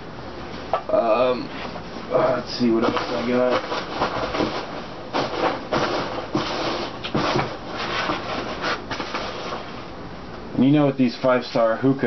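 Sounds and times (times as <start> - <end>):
hands rummaging in cardboard box: 2.6 - 9.7.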